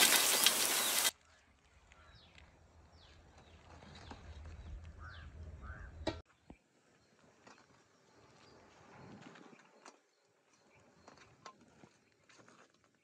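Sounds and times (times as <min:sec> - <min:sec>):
hot oil sizzling in a wok: 0:00.0 - 0:01.1.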